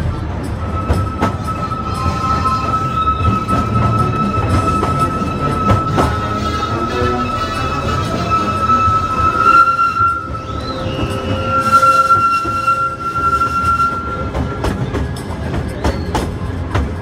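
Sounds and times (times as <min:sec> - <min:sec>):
train wheels squealing: 0:00.0 - 0:17.0
wheels clicking over rail joints: 0:10.0 - 0:17.0.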